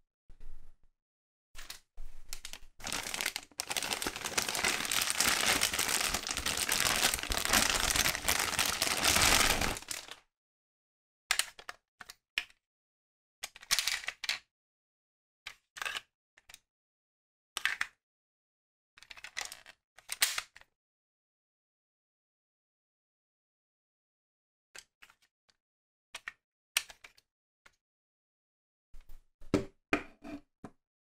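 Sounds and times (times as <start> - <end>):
plastic toy handling noise: 1.6 - 10.2
plastic bag crinkling: 2.5 - 10.2.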